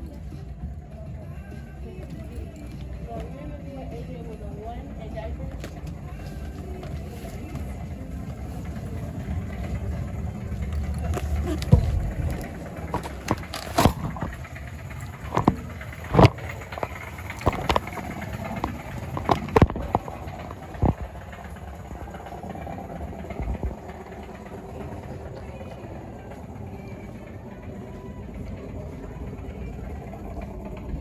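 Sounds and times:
shopping cart wheels rumbling: 0.0 - 31.0
cart knocking and rattling: 4.3 - 26.2.

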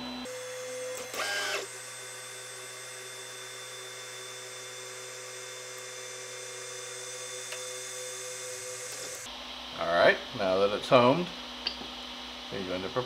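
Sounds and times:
stepper motors whining: 0.0 - 9.3.

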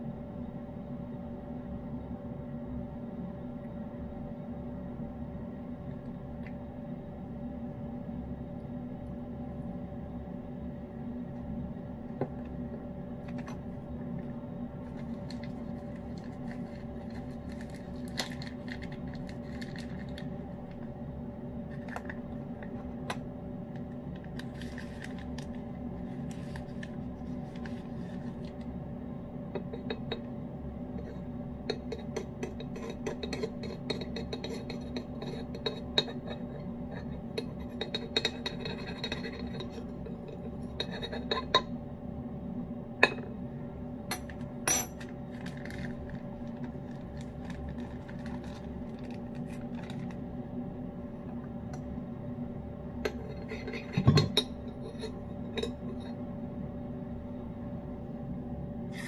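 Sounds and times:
steady low hum: 0.0 - 59.0
metal spoon scraping ceramic bowl: 31.0 - 41.7, 53.1 - 56.1.

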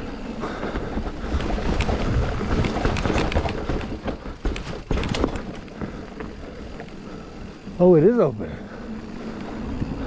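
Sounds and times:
tyre and wind rush: 0.0 - 6.7
bike rattling and clattering: 0.0 - 10.0.

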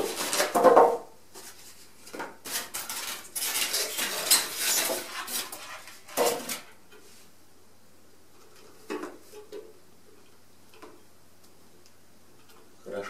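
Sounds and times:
styrofoam scraping and squeaking: 0.0 - 0.6, 2.4 - 6.6.

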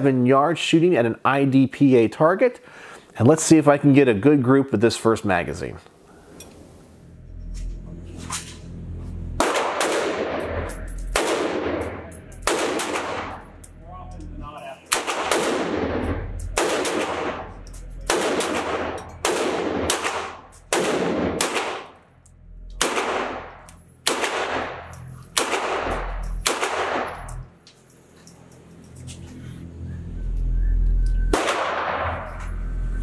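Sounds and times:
pistol shots echoing indoors: 9.4 - 13.8, 14.8 - 22.1, 22.7 - 27.4, 31.3 - 32.5.

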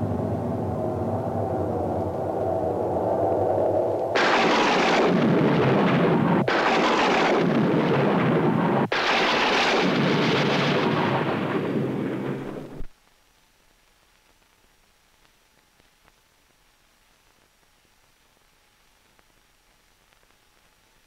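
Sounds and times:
thunder rumbling: 0.0 - 12.9.

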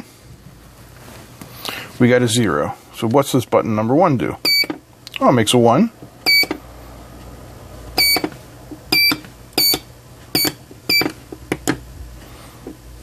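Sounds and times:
short high buzzer beeps: 6.3 - 6.6, 8.0 - 8.3, 8.9 - 9.8.

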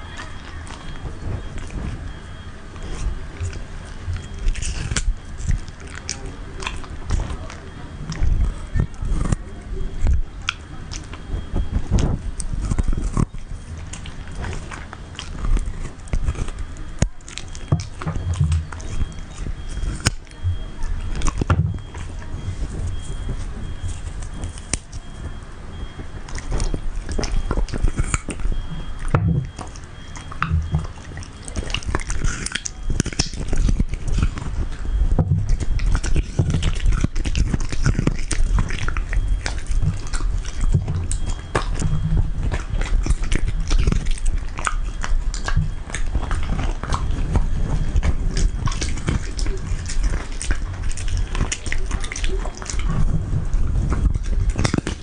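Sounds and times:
dog crunching coconut: 0.0 - 55.0
wet mouth clicks: 26.0 - 55.0.

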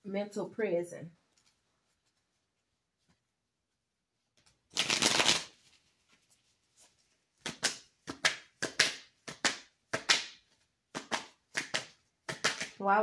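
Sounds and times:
cards rustling while shuffled: 4.4 - 12.8
short card slaps: 7.4 - 12.8.

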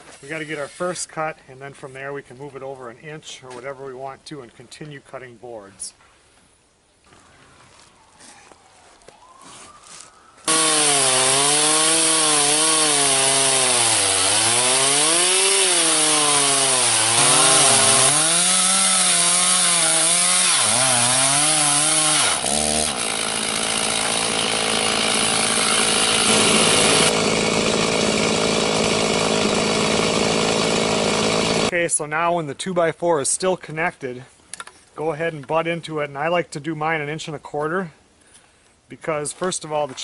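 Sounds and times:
chainsaw cutting log: 10.4 - 31.7.

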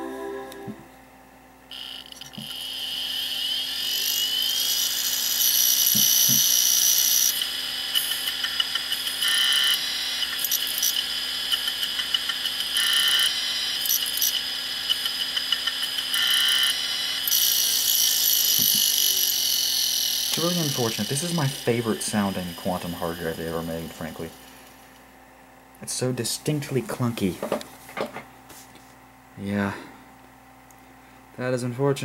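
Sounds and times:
hard drive whine: 0.0 - 32.0
hard drive head clicking: 8.0 - 17.4.

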